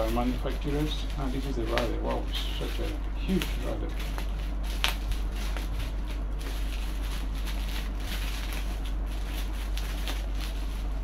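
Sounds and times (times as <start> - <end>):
bubble wrap crackling: 0.0 - 11.0.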